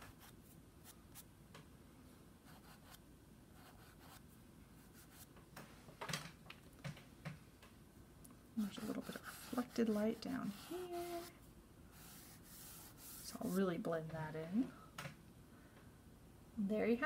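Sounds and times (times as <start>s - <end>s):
fingertip rubbing pastel on paper: 8.6s - 11.3s, 11.9s - 13.7s.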